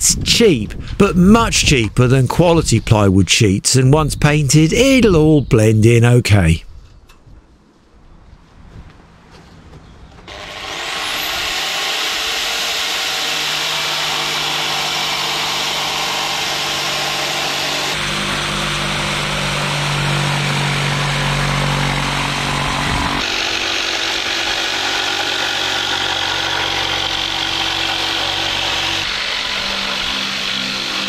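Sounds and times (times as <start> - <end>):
jigsaw sawing plywood: 10.3 - 31.0.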